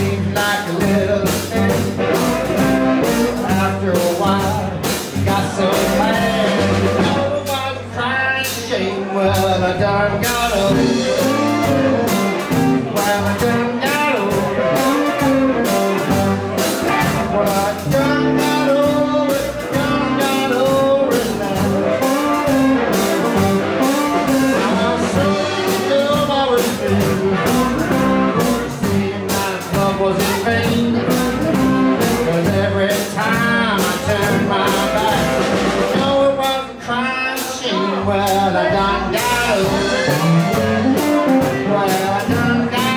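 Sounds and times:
blues band playing: 0:00.0 - 0:42.9
harmonica: 0:39.3 - 0:42.1.

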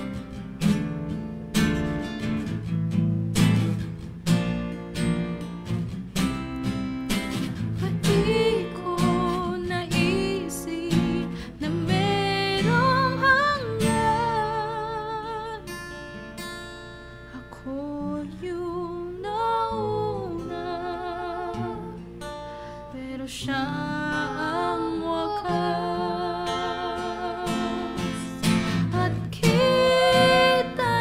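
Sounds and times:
acoustic guitar strumming: 0:00.0 - 0:31.0
woman singing wordless line: 0:07.8 - 0:15.8, 0:17.4 - 0:22.1, 0:22.8 - 0:31.0.

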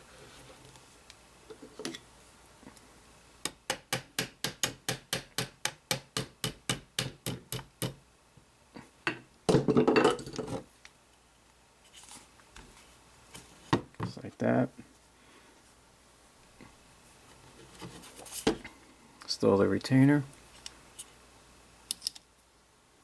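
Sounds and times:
hammer tapping metal pin: 0:03.4 - 0:08.0.

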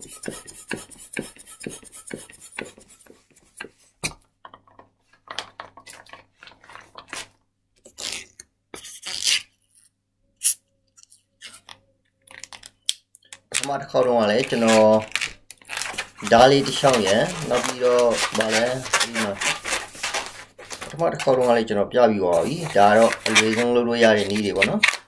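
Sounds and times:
latex balloon squeaks and rubs: 0:07.8 - 0:11.7, 0:14.3 - 0:21.4, 0:22.4 - 0:25.0.

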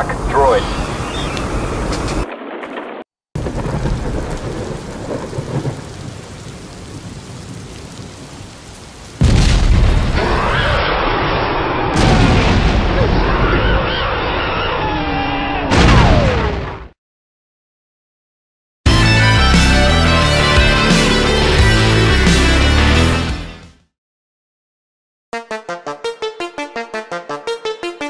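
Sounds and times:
loud thunder rumble: 0:03.4 - 0:08.4, 0:09.2 - 0:11.3, 0:11.9 - 0:13.8
steady rain hiss: 0:03.4 - 0:09.5.

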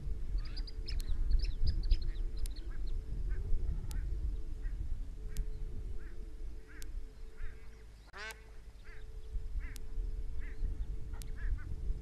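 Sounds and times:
geese honking: 0:06.0 - 0:09.8.

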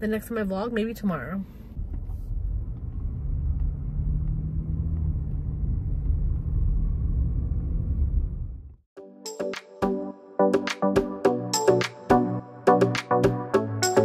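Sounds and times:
car road and engine rumble: 0:00.0 - 0:08.9.

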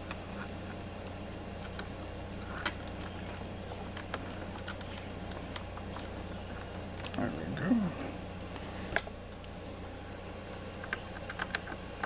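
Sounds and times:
steady low hum: 0:00.0 - 0:12.0
wires clicking and ticking: 0:01.0 - 0:07.3.

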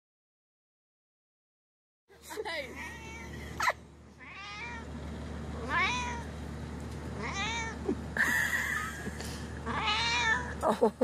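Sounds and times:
kitten meowing: 0:02.7 - 0:04.9, 0:05.6 - 0:06.3, 0:07.2 - 0:07.8, 0:09.6 - 0:10.6.

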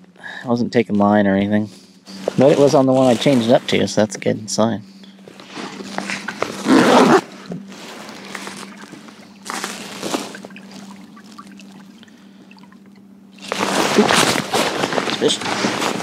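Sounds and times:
water trickling along hull: 0:07.8 - 0:13.1.

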